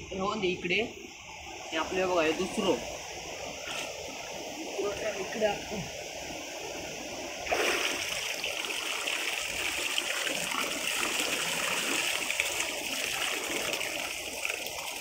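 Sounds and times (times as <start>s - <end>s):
water pouring and splashing: 7.4s - 15.0s.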